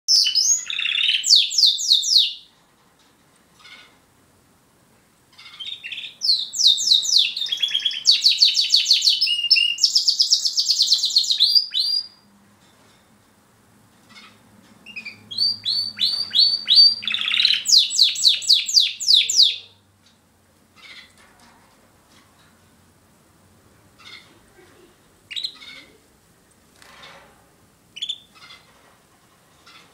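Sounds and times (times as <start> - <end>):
canary trilling: 0.1 - 2.5, 5.3 - 12.2, 14.1 - 19.8, 20.8 - 21.2, 24.0 - 24.4, 25.3 - 26.0, 28.0 - 28.8.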